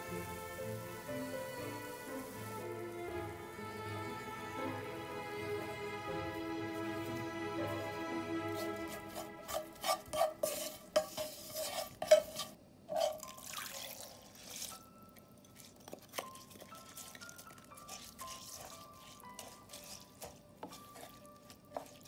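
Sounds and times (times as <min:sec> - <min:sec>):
wooden spoon scraping frying pan: 0:08.4 - 0:13.4, 0:14.2 - 0:14.9, 0:15.6 - 0:22.0
liquid pouring into pan: 0:13.1 - 0:18.4.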